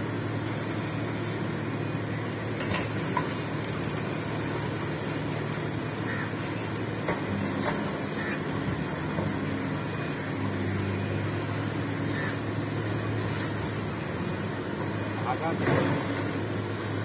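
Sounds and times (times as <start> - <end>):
heavy machine engine running: 0.0 - 17.0.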